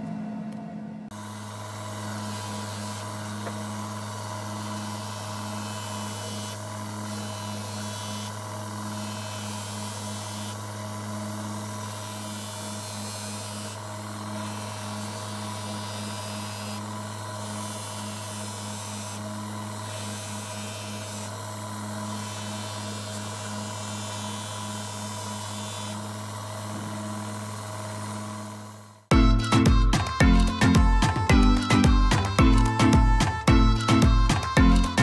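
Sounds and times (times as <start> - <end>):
bench grinder motor humming: 1.1 - 35.0
hiss of knife sharpening: 2.2 - 10.6, 19.8 - 21.3, 22.0 - 26.0.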